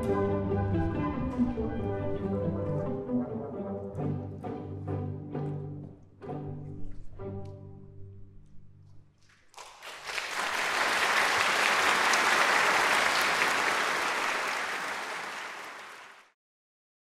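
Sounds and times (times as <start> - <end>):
audience applauding: 9.3 - 16.4.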